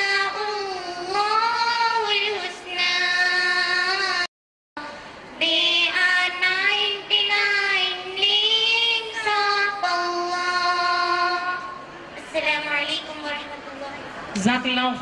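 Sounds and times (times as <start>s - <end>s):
girls singing into a microphone: 0.0s - 12.7s.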